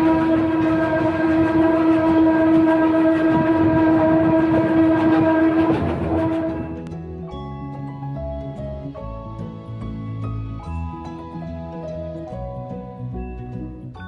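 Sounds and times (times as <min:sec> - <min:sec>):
steam locomotive whistle: 0:00.0 - 0:06.9.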